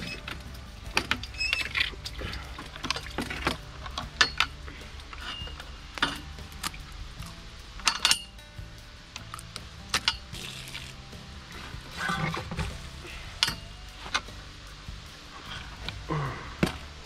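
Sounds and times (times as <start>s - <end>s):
water sloshing: 0.0s - 7.4s.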